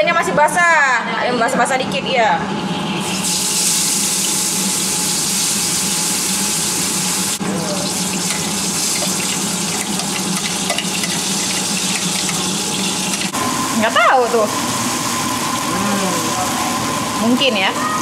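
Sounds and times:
wok sizzling: 3.0s - 18.0s.

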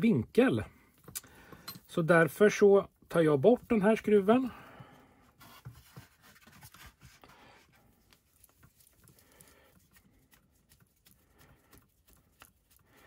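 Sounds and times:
hands clicking and scratching plastic: 4.8s - 13.0s.

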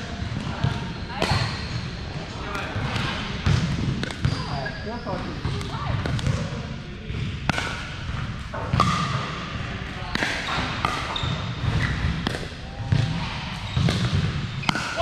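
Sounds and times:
players chatting: 0.0s - 7.4s
paddles hitting ball: 2.5s - 4.4s, 5.4s - 15.0s.

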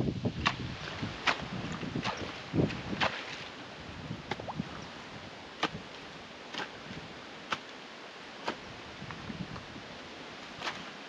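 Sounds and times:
digging tool striking wet soil: 0.4s - 3.3s, 4.2s - 4.6s, 5.6s - 5.9s, 6.5s - 6.8s, 7.4s - 7.7s, 8.4s - 8.7s, 10.6s - 11.0s.

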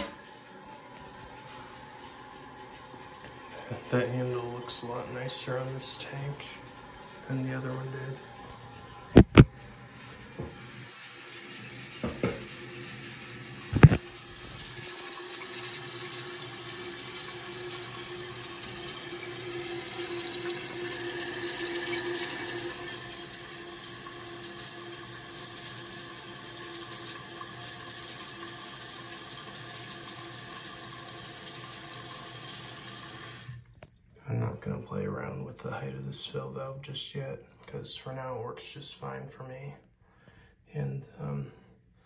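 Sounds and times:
toilet tank refilling hiss: 0.0s - 9.2s, 10.0s - 33.6s.

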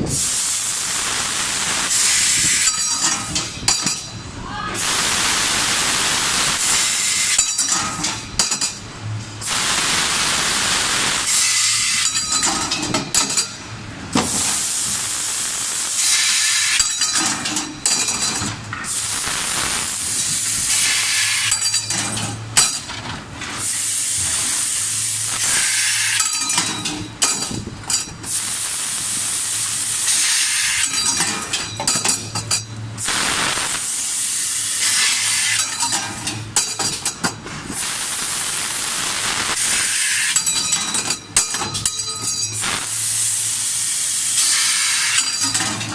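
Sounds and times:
gas jet hissing: 0.1s - 3.3s, 4.8s - 7.8s, 9.4s - 12.4s, 14.2s - 17.2s, 18.8s - 21.6s, 23.6s - 26.5s, 28.3s - 31.2s, 33.0s - 36.0s, 37.7s - 40.6s, 42.6s - 45.6s.

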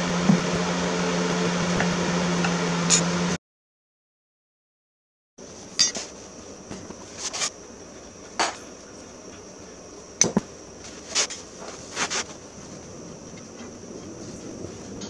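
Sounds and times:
metal tools clinking: 5.8s - 6.1s.

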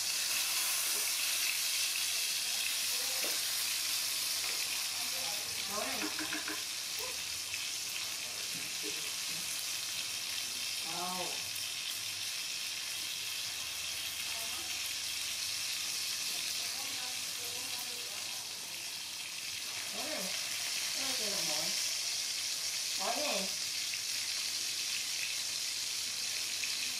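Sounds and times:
fish sizzling in oil: 0.0s - 26.9s.

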